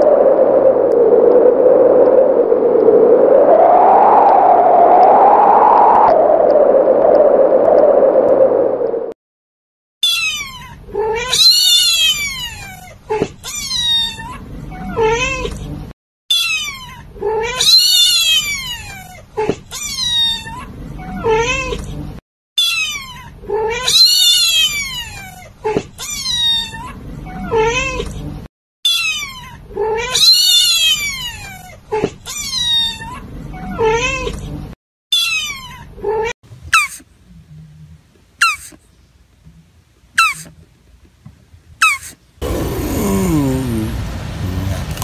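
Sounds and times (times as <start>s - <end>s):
cat meowing: 10.0s - 15.5s, 16.3s - 21.8s, 22.6s - 25.4s, 28.9s - 31.7s, 35.1s - 35.9s.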